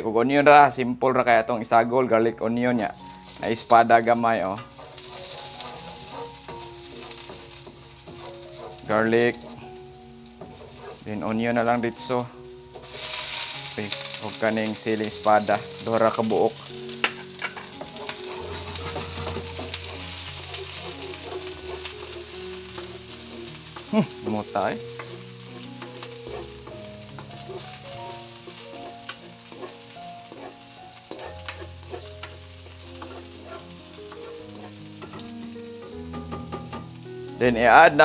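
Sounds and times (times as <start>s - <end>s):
vegetables sizzling in hot oil: 2.8s - 38.0s
spatula scraping and tapping wok: 3.0s - 37.0s.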